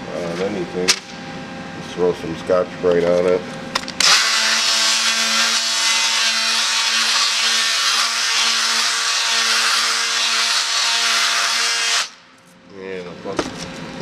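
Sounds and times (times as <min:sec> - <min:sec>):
power sander running: 0:04.0 - 0:12.2
abrasive pad scrubbing metal: 0:04.2 - 0:12.1.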